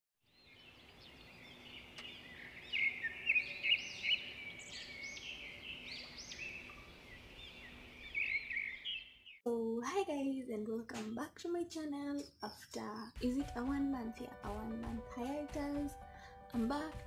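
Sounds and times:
small birds chirping: 0.2 - 9.4, 12.0 - 15.0.

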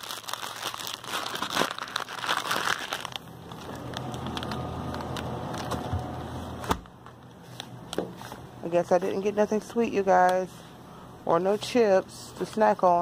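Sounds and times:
plastic packaging crinkling: 0.0 - 6.6
low hum: 3.1 - 7.9.

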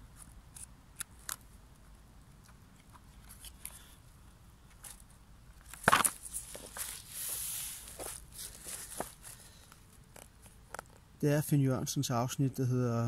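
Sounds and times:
book pages crackling on dry leaves: 4.8 - 11.0.

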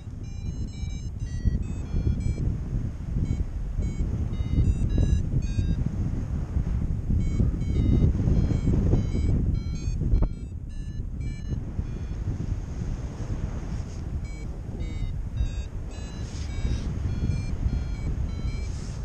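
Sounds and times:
variometer beeping: 0.0 - 2.6, 3.2 - 6.0, 7.1 - 12.6, 14.1 - 19.0
wind on microphone: 0.0 - 19.0.

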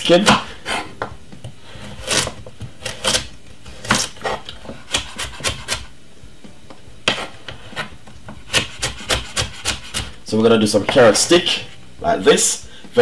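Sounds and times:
knife cutting carrot on board: 1.9 - 5.9, 8.5 - 10.2.

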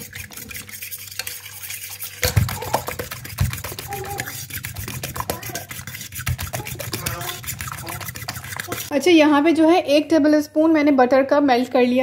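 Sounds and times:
whisk clicking in steel bowl: 0.0 - 9.0.

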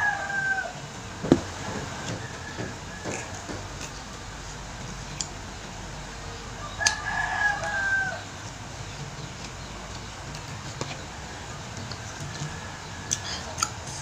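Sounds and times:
rooster crowing: 0.0 - 4.2, 6.3 - 8.4, 11.2 - 14.0.

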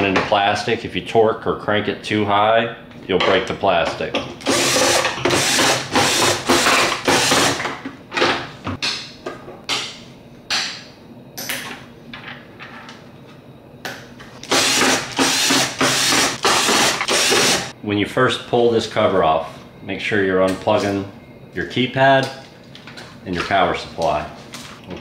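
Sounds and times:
power drill bursts: 4.4 - 7.6, 14.4 - 17.7.

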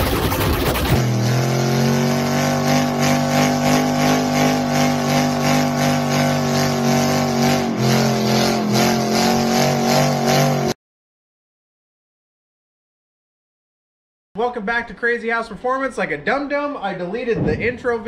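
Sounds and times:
car engine running at raised revs: 0.0 - 10.8.

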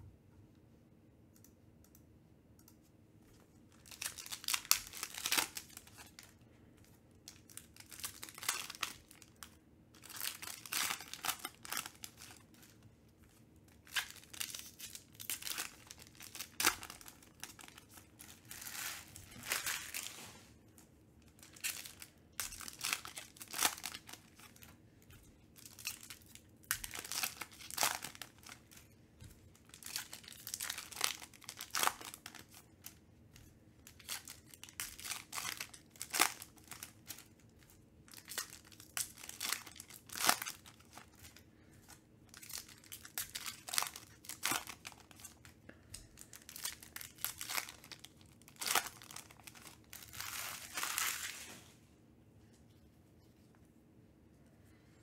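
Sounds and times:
foil wrappers tearing and crinkling: 3.8 - 6.4, 7.3 - 9.4, 10.0 - 12.7, 13.8 - 20.4, 21.4 - 24.7, 25.6 - 29.0, 29.6 - 33.0, 33.8 - 41.4, 42.3 - 45.5, 46.2 - 51.6.

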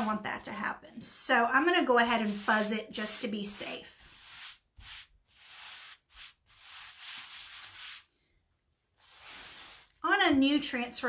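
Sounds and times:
hissing rubbing strokes on cloth: 2.1 - 8.1, 9.0 - 10.0.

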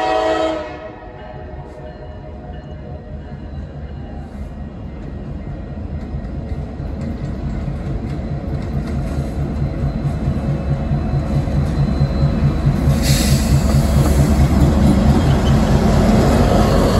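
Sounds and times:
locomotive engine rumble: 3.2 - 16.9.

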